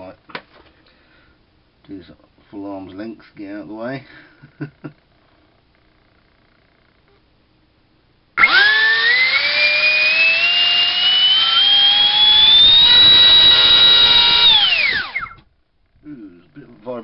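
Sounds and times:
electric ducted fan whine: 0:00.0 - 0:17.0.

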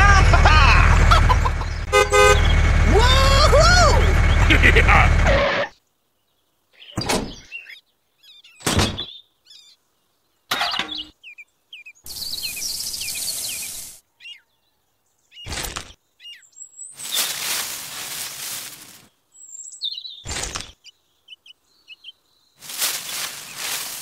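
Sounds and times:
birds chirping: 0:00.0 - 0:24.0
sand pouring into can: 0:12.8 - 0:14.0, 0:17.0 - 0:19.0
powder pouring from paper bag: 0:17.0 - 0:19.0, 0:22.6 - 0:24.0.

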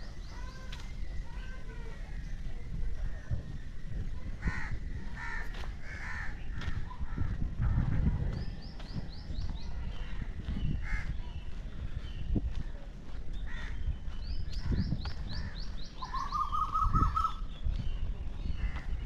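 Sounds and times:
birds chirping: 0:00.0 - 0:19.0
bird trill: 0:13.5 - 0:17.7.

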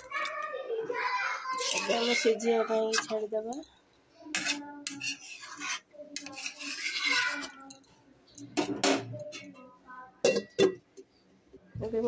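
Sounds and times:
metal spoon scraping a pan: 0:01.5 - 0:03.4, 0:04.3 - 0:09.6.

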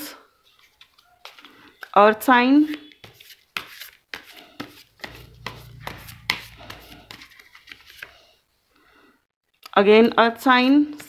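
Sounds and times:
cards being shuffled: 0:03.0 - 0:08.2.

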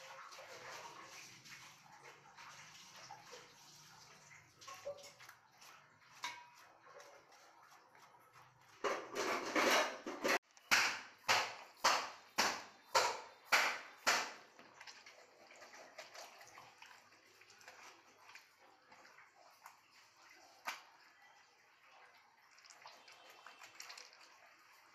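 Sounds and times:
wet scrubbing by hand: 0:00.0 - 0:09.3
wet squishing: 0:02.2 - 0:08.8, 0:11.0 - 0:24.9.

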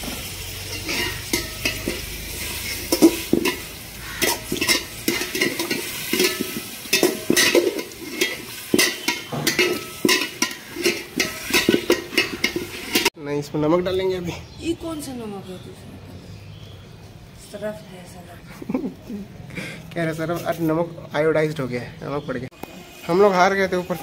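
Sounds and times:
frying sizzle: 0:00.0 - 0:13.2, 0:22.5 - 0:24.0
spatula scraping metal pot: 0:00.7 - 0:13.1.

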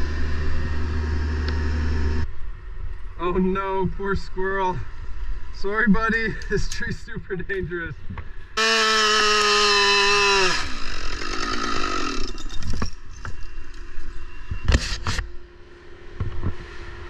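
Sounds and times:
chainsaw running: 0:00.0 - 0:02.2, 0:08.6 - 0:12.6.

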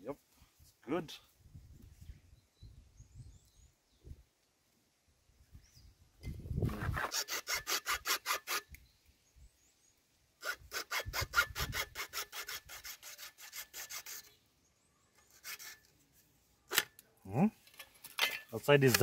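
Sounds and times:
hacksaw cutting plastic pipe: 0:06.7 - 0:08.7, 0:10.4 - 0:14.3.

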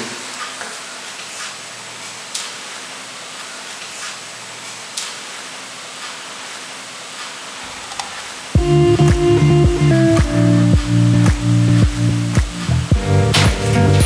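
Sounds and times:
background hiss: 0:00.0 - 0:14.0
loud music: 0:08.6 - 0:14.0.

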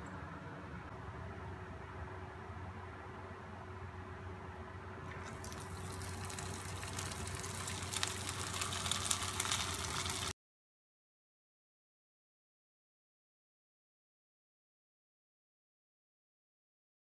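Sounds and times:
oil sizzling in a frying pan: 0:05.2 - 0:10.3.

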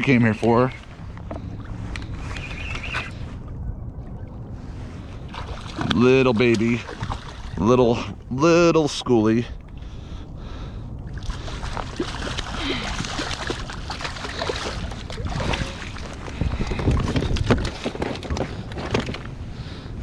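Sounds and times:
fish thrashing and splashing: 0:05.3 - 0:07.6, 0:11.2 - 0:19.2.

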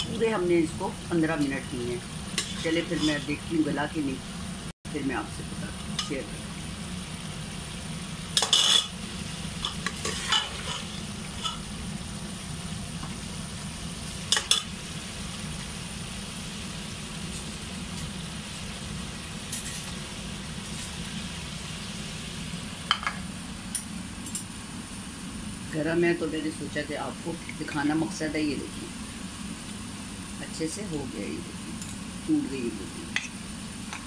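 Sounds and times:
curry bubbling and sizzling: 0:00.0 - 0:23.3.

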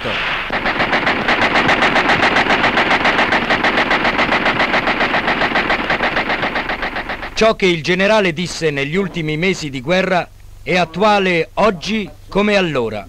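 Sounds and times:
machine gun firing: 0:00.0 - 0:07.8.

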